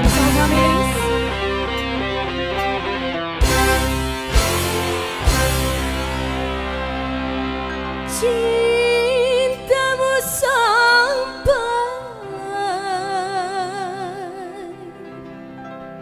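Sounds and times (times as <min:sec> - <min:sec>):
woman singing into a microphone: 0:00.0 - 0:01.4, 0:08.1 - 0:15.4
live band playing: 0:00.0 - 0:10.2.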